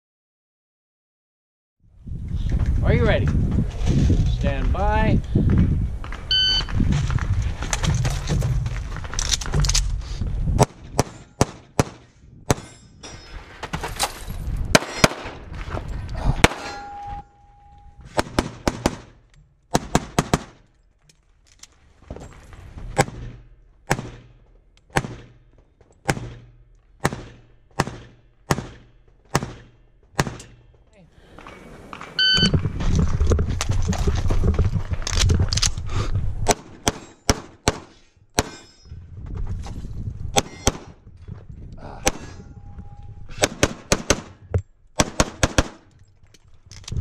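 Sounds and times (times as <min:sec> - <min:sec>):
pistol shots: 0:14.7 - 0:15.4, 0:16.4 - 0:16.8, 0:26.0 - 0:30.6, 0:45.0 - 0:45.8
steel target ringing: 0:16.5 - 0:17.7.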